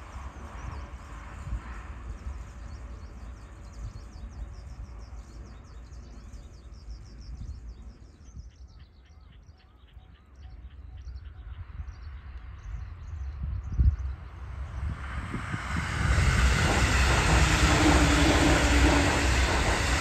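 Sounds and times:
low outdoor rumble: 10.4s - 20.0s.

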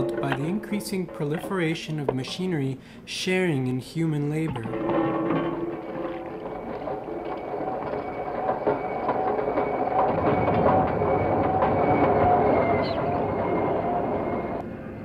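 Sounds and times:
train clattering and rumbling: 4.5s - 14.6s.

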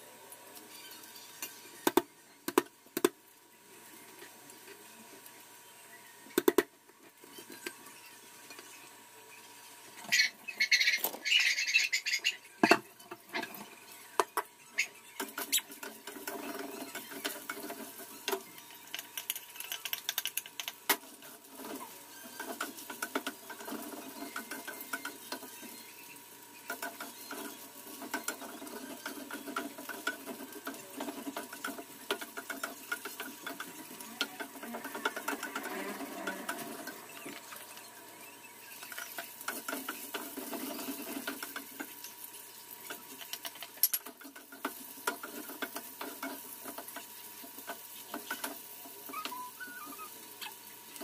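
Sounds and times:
frying hiss: 0.0s - 51.0s
spatula scraping a frying pan: 14.8s - 18.4s, 21.1s - 37.2s.

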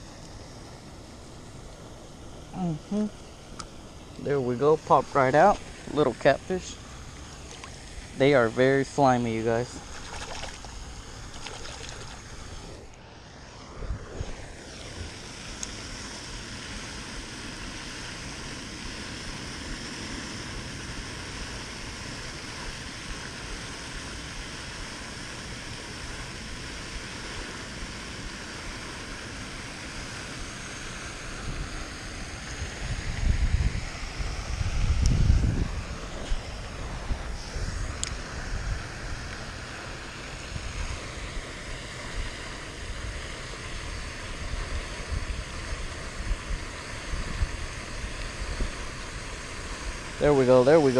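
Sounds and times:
fountain water spraying: 0.0s - 50.9s
wind on microphone: 31.4s - 39.3s.

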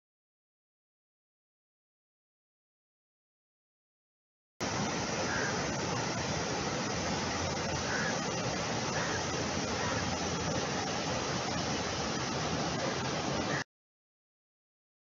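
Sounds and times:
river rushing over rapids: 4.6s - 13.6s.

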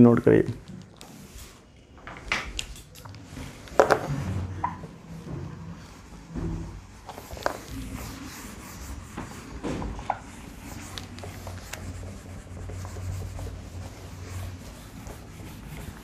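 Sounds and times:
eraser rubbing a whiteboard: 7.0s - 16.0s.

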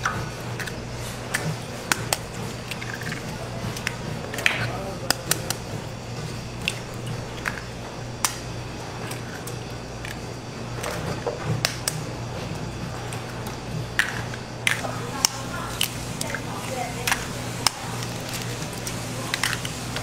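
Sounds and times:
eggs cracking against metal pan: 0.0s - 5.7s, 6.5s - 10.3s, 13.4s - 20.0s
steady low hum: 0.0s - 20.0s.

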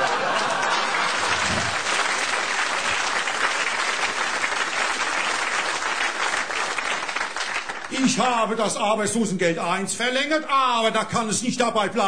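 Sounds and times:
audience laughter: 0.0s - 2.0s
audience applauding: 0.0s - 8.6s.

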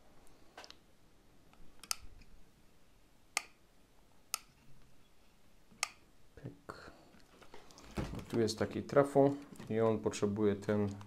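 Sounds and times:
sharp clicks: 1.5s - 2.2s.

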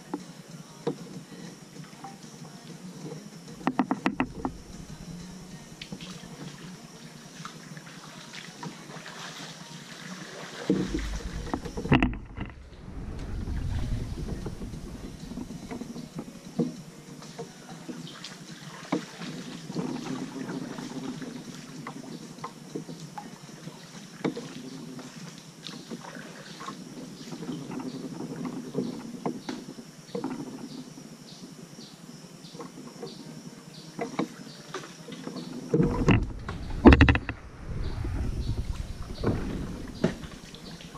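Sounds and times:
paddle strokes in water: 0.9s - 31.5s, 32.5s - 40.9s
paddle knocks and drips: 3.0s - 30.9s, 33.9s - 40.9s
wind gust on microphone: 10.7s - 16.5s, 35.8s - 40.9s.

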